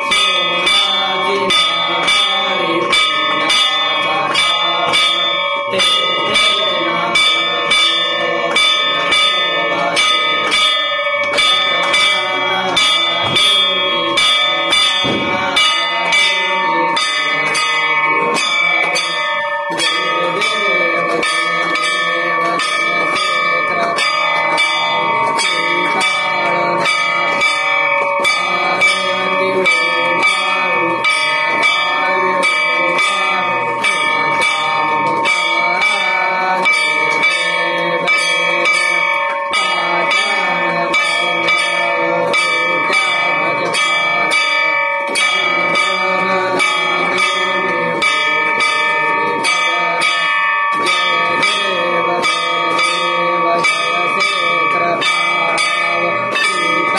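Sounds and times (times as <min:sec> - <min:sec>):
metal gong struck with stick: 0:15.0 - 0:15.6.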